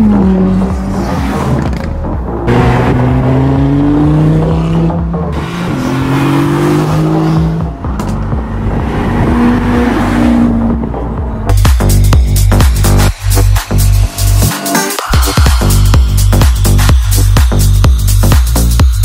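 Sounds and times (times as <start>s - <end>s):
sports car engine accelerating: 0.0s - 12.3s.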